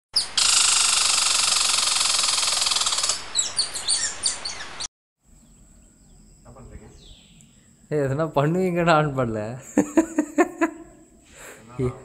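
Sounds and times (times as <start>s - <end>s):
loud hiss-like buzz: 0.2s - 4.9s
faint outdoor background: 0.2s - 12.0s.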